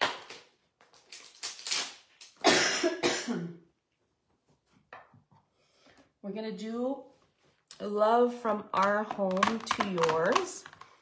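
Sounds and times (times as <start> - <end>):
person clearing throat: 2.4 - 3.7
person coughing: 2.4 - 3.7.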